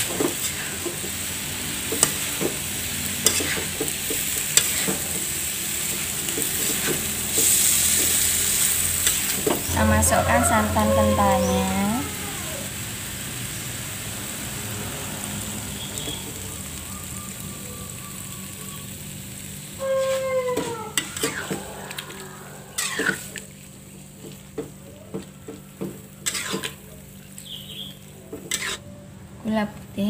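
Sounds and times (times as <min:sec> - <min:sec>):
food sizzling in a pan: 0:00.0 - 0:28.8
metal spatula scraping pan: 0:03.2 - 0:03.7, 0:04.6 - 0:05.0, 0:09.0 - 0:12.1, 0:19.8 - 0:23.4, 0:26.2 - 0:26.8, 0:28.5 - 0:28.8.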